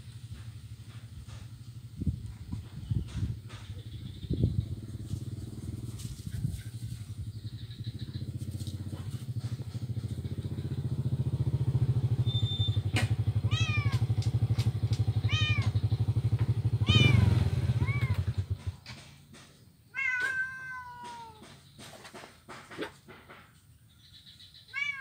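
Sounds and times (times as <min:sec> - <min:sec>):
engine throbbing: 0:00.0 - 0:19.7
kitten meowing: 0:13.4 - 0:14.0, 0:15.3 - 0:15.8, 0:16.8 - 0:17.2, 0:17.8 - 0:18.3, 0:20.0 - 0:21.4, 0:24.7 - 0:25.0.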